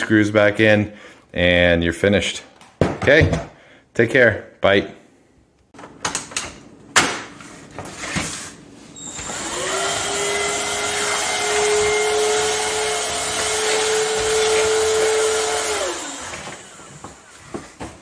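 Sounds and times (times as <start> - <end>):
stick vacuum motor whirring: 9.0 - 17.8.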